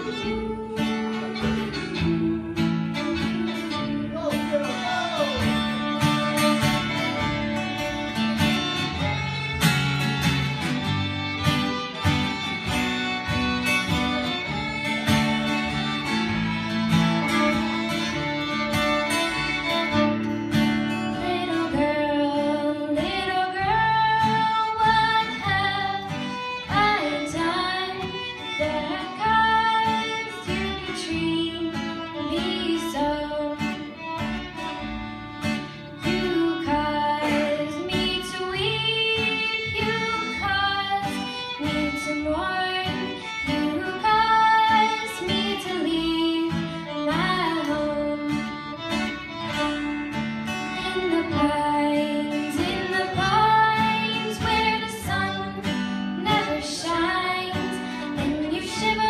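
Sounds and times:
woman singing: 0.0 - 4.3, 21.0 - 34.1, 36.0 - 48.8, 50.7 - 59.0
fiddle: 0.0 - 59.0
strummed acoustic guitar: 0.0 - 59.0.

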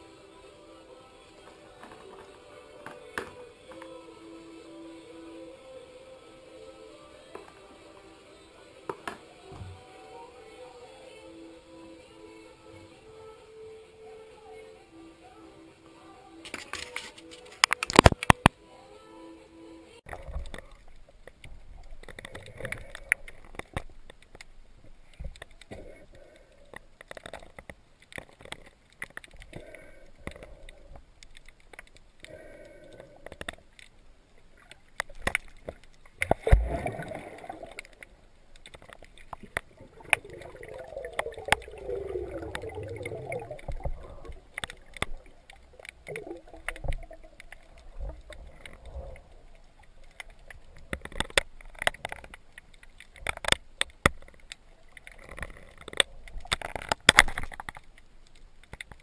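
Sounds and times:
sharp underwater clicks and crackles: 16.4 - 18.6, 20.0 - 59.0
bubbling gurgle: 34.5 - 38.2, 38.8 - 52.2.

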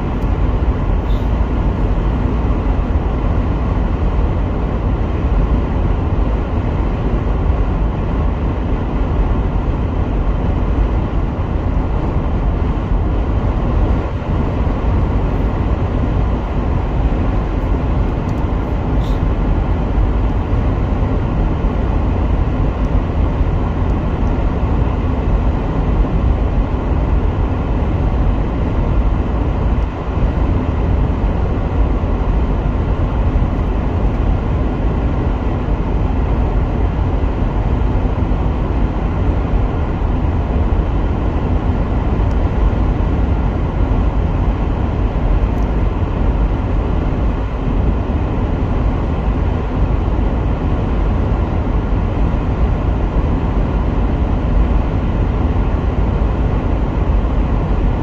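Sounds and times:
car road and engine noise: 0.0 - 58.0.

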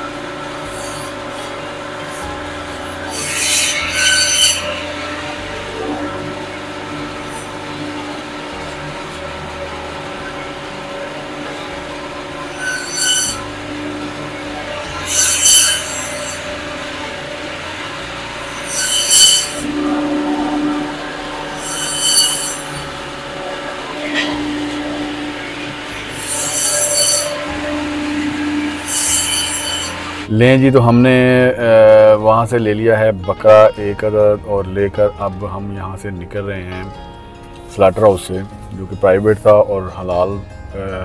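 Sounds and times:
band saw motor hum: 0.0 - 30.6
saw blade screeching through bone: 0.6 - 5.2, 12.5 - 13.5, 14.9 - 16.5, 18.4 - 19.8, 21.6 - 22.9, 25.9 - 27.5, 28.5 - 30.2.

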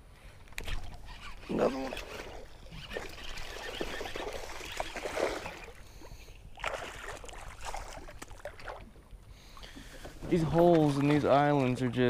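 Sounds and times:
fish thrashing and splashing water: 1.9 - 8.9.

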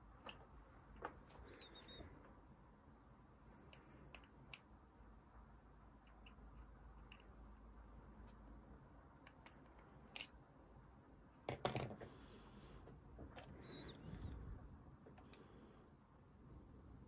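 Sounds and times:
small metal parts clicking: 9.2 - 10.4
small screwdriver being handled: 9.2 - 10.4.

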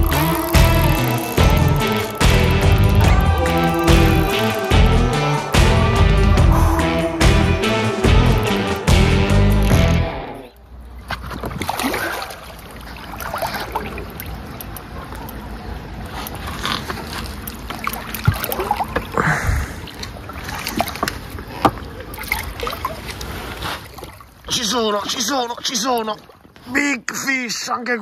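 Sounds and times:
background music: 0.0 - 10.5
water sloshing against inflatable boat: 10.7 - 26.7.

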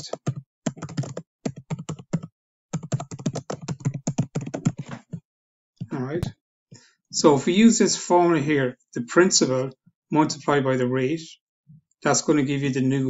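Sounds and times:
typing on keyboard: 0.0 - 5.2.

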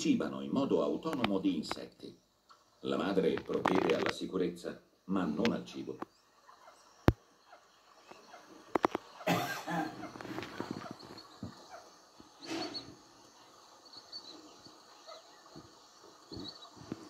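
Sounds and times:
faint high chirps: 5.2 - 17.0
baby crocodiles calling: 5.4 - 17.0.

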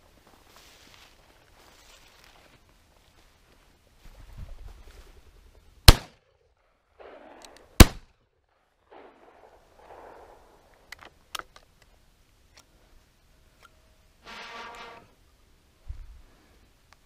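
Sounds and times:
shotgun shots with echo: 5.9 - 6.2, 7.0 - 8.0.

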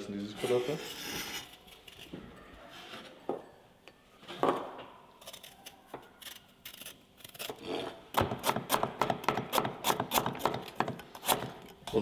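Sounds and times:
vegetable peeler scraping: 0.4 - 2.1, 5.2 - 8.8
knife chopping on wooden board: 8.2 - 11.5.

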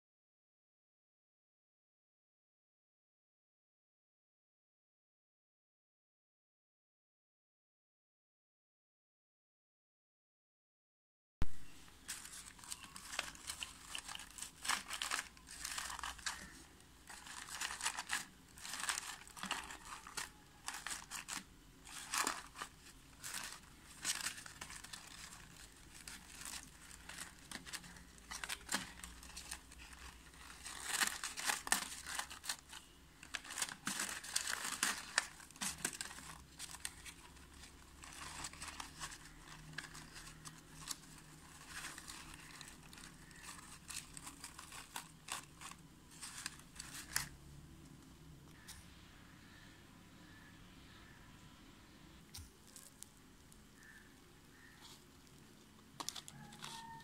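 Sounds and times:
paper rustling and crinkling: 11.9 - 47.4, 53.8 - 57.0.

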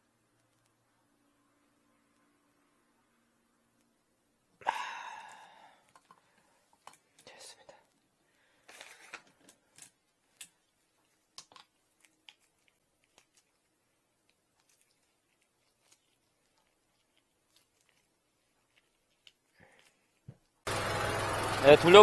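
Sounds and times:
soft rustle: 6.1 - 20.6.

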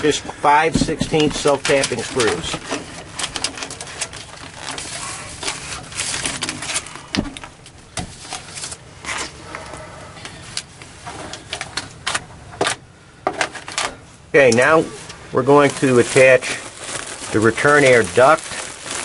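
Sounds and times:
crackling and rustling: 0.0 - 12.8, 13.4 - 19.0
tape peeling off a roll: 0.8 - 7.0.

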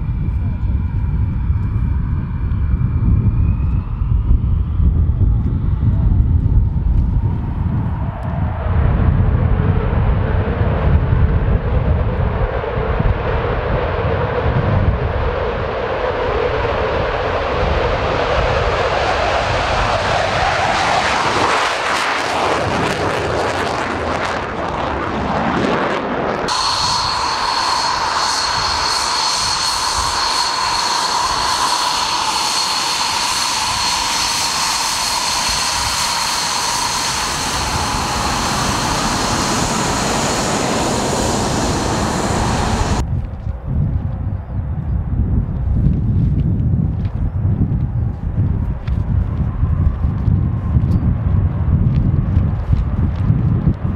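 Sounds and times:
jet engine high-pitched whine: 0.0 - 53.9
jet engines roaring on take-off: 0.0 - 53.9.

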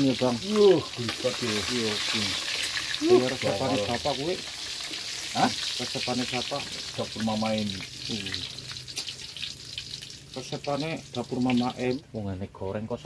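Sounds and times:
fish sizzling in hot oil: 0.0 - 12.2
voices talking: 3.0 - 4.4.

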